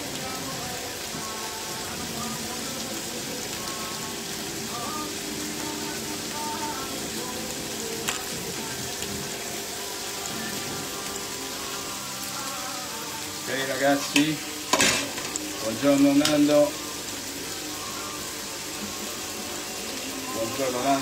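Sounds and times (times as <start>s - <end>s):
pasta sizzling in a pan: 0.0s - 21.0s.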